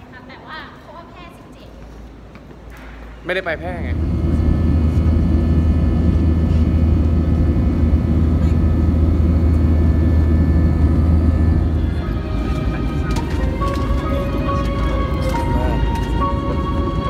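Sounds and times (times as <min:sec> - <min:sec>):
faint whining tones: 0:03.5 - 0:17.0
jet engines rumbling in cabin: 0:03.5 - 0:17.0.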